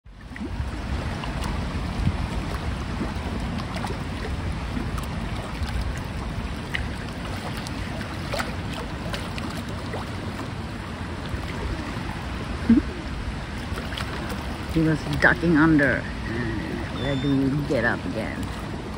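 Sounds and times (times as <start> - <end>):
choppy lake water: 0.0 - 18.9
wind buffeting microphone: 0.1 - 18.9.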